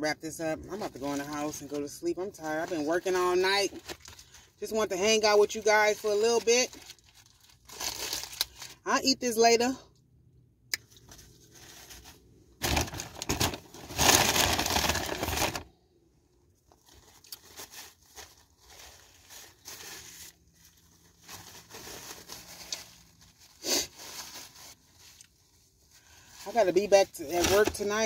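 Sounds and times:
paper wrapper crinkling: 0:02.4 - 0:04.5, 0:05.9 - 0:08.8, 0:11.0 - 0:15.7, 0:16.7 - 0:28.0.

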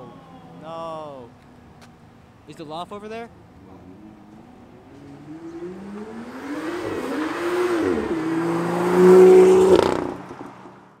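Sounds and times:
sports car accelerating past: 0:03.5 - 0:11.0.

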